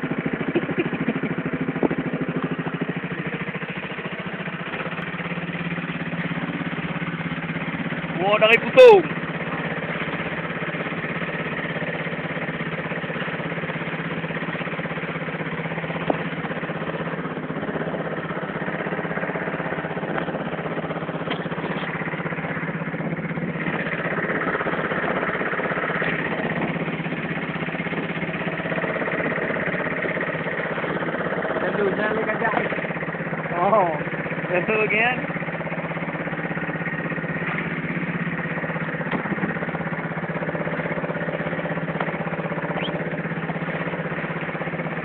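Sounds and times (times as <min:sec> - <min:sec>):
motorboat engine humming: 0:00.0 - 0:45.0.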